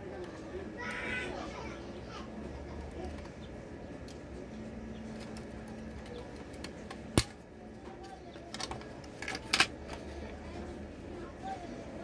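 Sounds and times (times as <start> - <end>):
plastic housing clicking and snapping: 8.5 - 9.8.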